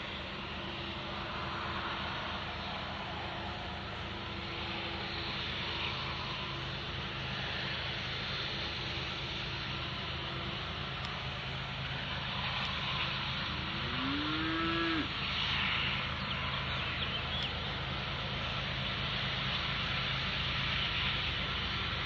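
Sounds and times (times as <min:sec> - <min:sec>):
diesel locomotive drone: 0:00.0 - 0:22.0
cow mooing: 0:13.8 - 0:15.2.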